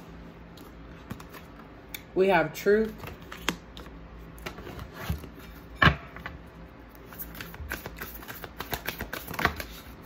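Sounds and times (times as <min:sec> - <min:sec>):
cards clicking and tapping: 0:07.1 - 0:09.9.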